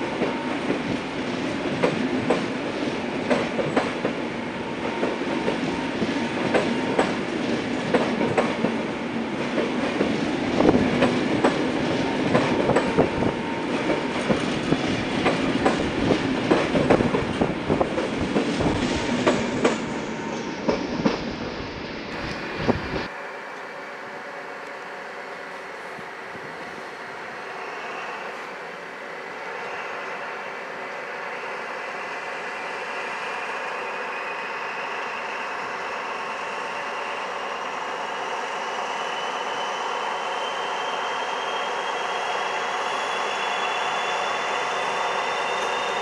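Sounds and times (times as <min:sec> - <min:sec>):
train wheels rumbling on rails: 0:00.0 - 0:23.1.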